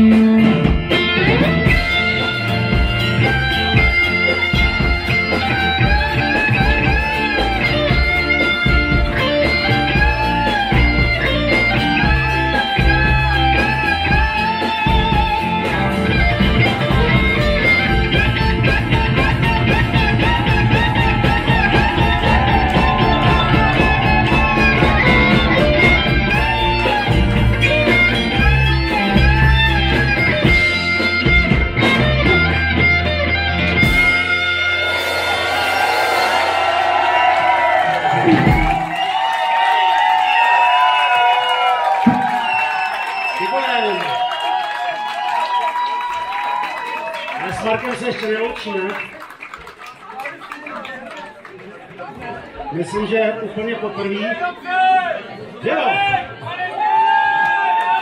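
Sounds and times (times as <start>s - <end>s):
lead guitar bent notes: 0.0s - 35.8s
rock band playing: 0.0s - 50.5s.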